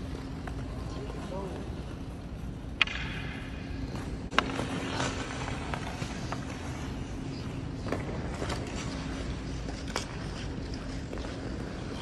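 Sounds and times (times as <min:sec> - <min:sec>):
steady low hum: 0:00.0 - 0:12.0
hockey stick striking puck: 0:02.8 - 0:06.5.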